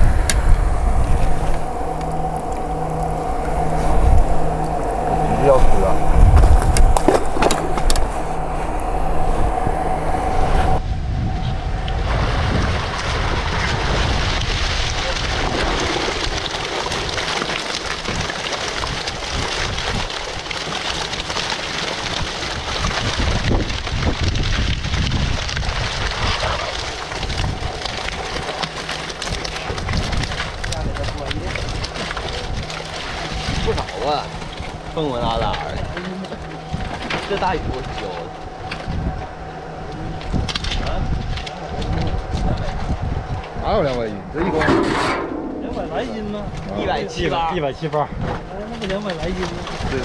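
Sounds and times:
steady machine hum: 0.0 - 12.4, 31.7 - 43.6, 44.2 - 46.9
wind buffeting microphone: 0.0 - 50.0.

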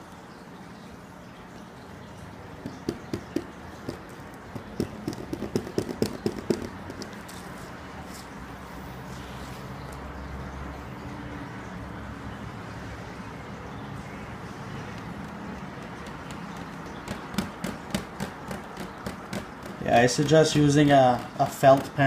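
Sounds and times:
pencil tapping on plastic sheet: 2.6 - 7.4, 15.1 - 22.0.

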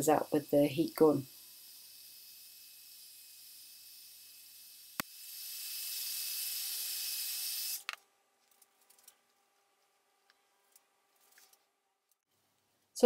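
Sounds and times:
heat gun blowing air: 0.0 - 7.9.

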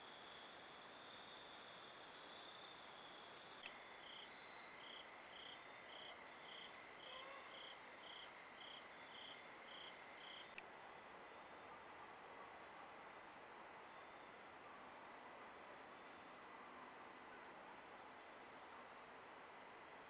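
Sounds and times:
high insect chirp: 0.1 - 11.6
insects trilling: 0.2 - 10.6.

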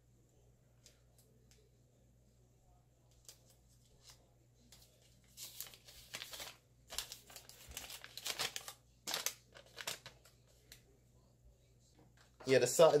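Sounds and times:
packaging crinkling: 5.2 - 10.4.

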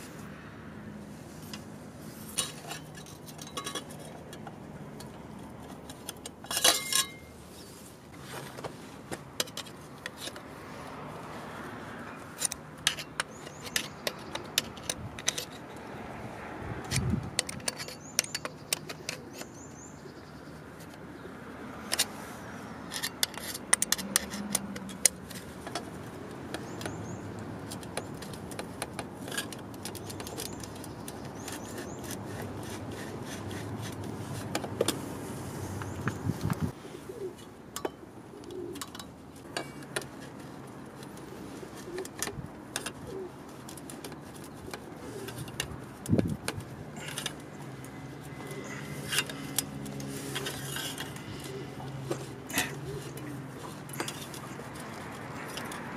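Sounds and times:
wrench and metal parts clinking: 2.3 - 5.1, 5.8 - 7.3, 16.8 - 19.6, 43.7 - 55.9.

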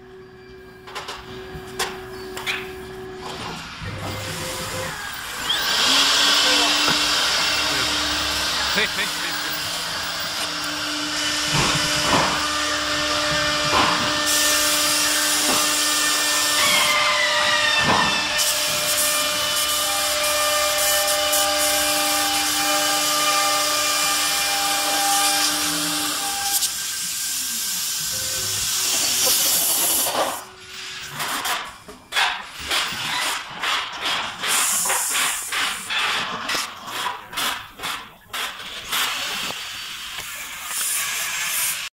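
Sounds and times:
router spindle whine: 3.0 - 26.7
cutter hissing through wood: 3.8 - 31.6, 32.8 - 41.9.

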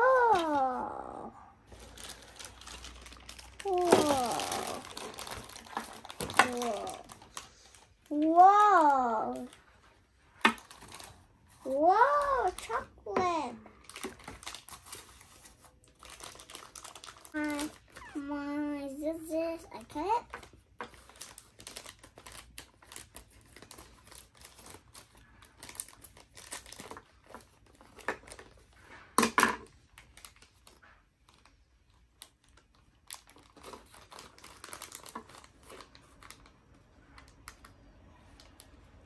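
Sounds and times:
plastic bag crinkling: 0.0 - 18.2, 19.8 - 29.0, 29.7 - 39.0
scissors cutting plastic: 3.6 - 7.1.

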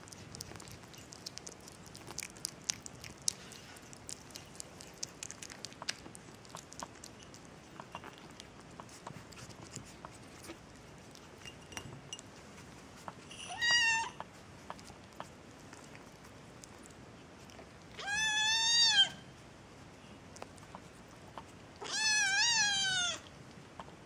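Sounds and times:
kitten chewing: 0.0 - 24.0
kitten meowing: 13.5 - 14.2, 18.0 - 19.2, 21.8 - 23.2.

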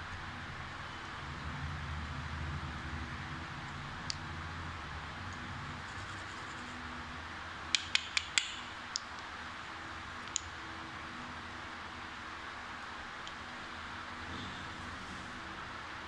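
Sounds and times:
battery cells clicking together: 10.2 - 10.5.

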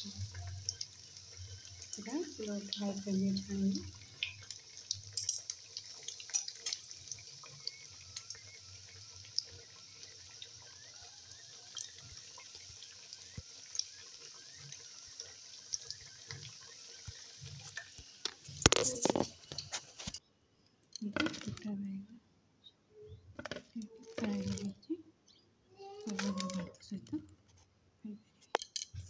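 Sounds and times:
deep-frying sizzle with pops: 0.0 - 20.2, 23.4 - 24.7.

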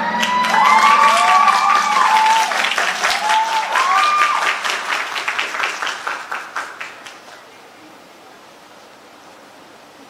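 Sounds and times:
high-pitched cheers and whoops: 0.0 - 4.9
audience applauding: 0.0 - 7.5.

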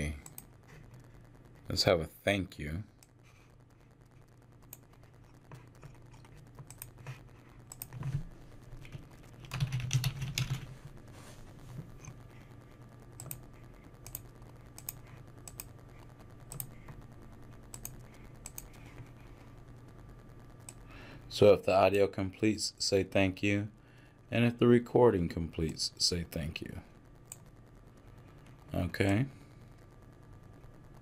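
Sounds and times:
keyboard typing: 4.7 - 8.2, 8.8 - 10.8, 13.2 - 15.8, 16.4 - 17.0, 17.7 - 19.1.

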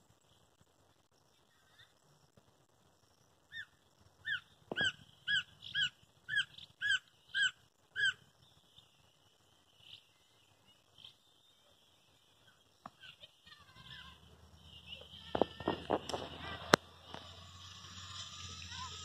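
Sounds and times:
woodpecker calling: 3.5 - 9.0, 9.7 - 19.0.

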